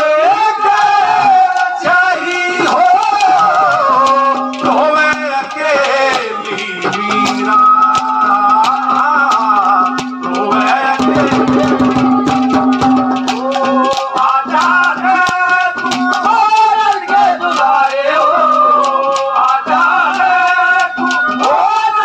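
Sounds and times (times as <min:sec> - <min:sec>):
hand drum beats: 0:00.0 - 0:22.0
rattling percussion: 0:00.0 - 0:22.0
wavering melodic line: 0:09.0 - 0:13.4
held drone note: 0:10.0 - 0:13.3.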